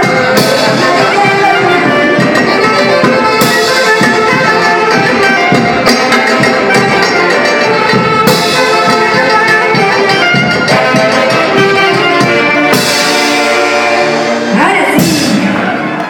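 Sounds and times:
horns holding long chord: 0.0s - 16.0s
live band playing dance music: 0.0s - 16.0s.

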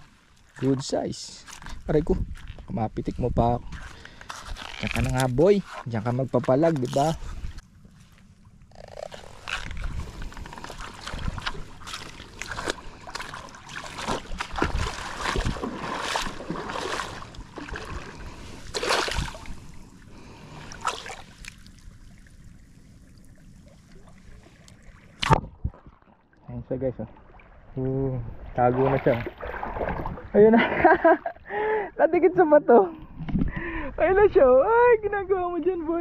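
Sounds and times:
seawater sloshing and splashing: 6.9s - 26.4s, 27.0s - 30.4s.

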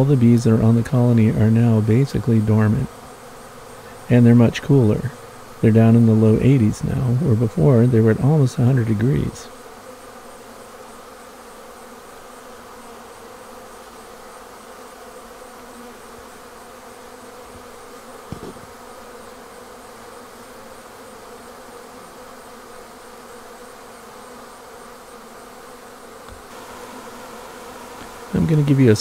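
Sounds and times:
bees buzzing: 0.0s - 29.0s
brief thump: 18.3s - 18.8s.

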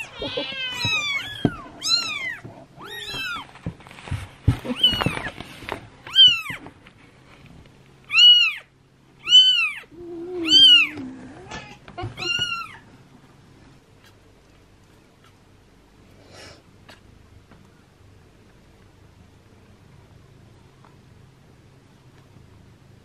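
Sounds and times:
kitten mewing: 0.0s - 3.4s, 4.6s - 5.3s, 9.2s - 12.8s.

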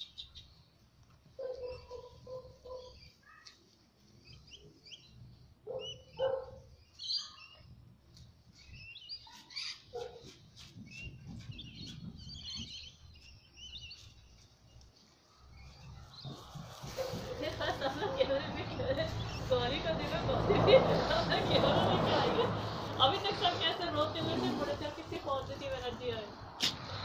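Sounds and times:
small birds chirping: 0.0s - 20.2s.

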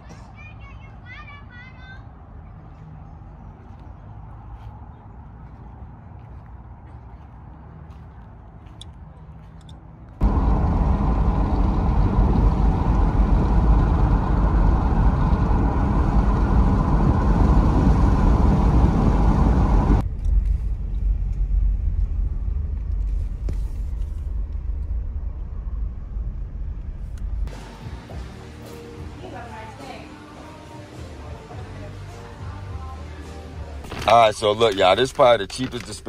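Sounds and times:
car road and engine rumble: 1.3s - 29.6s.

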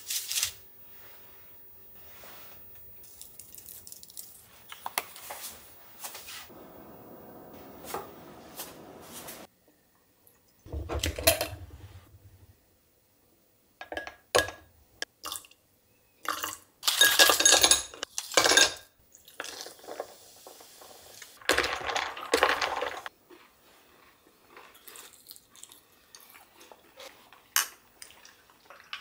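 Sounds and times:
spoon and ice clinking on glass: 16.3s - 18.8s.

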